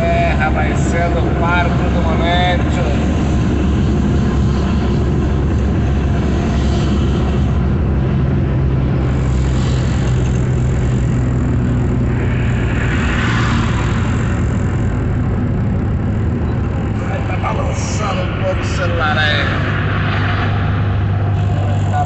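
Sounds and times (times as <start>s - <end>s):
engine drone and tyre noise: 0.0s - 22.0s
car passing alongside: 12.0s - 22.0s.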